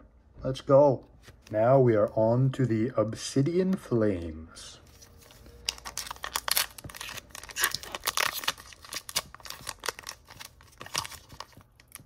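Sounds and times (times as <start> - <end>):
foil wrapper crinkling and tearing: 5.1 - 12.0.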